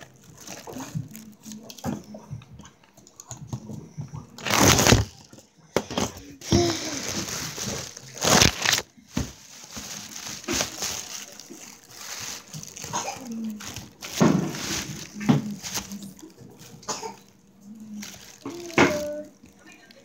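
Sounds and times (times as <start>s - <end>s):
hands rustling on phone microphone: 7.0s - 16.3s.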